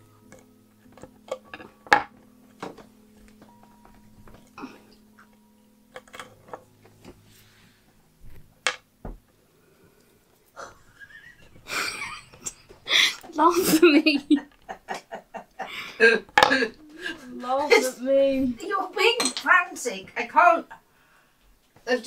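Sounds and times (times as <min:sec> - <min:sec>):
faint steady hum: 0:00.0 - 0:22.0
small objects clicking and tapping: 0:00.3 - 0:04.6, 0:05.2 - 0:07.2.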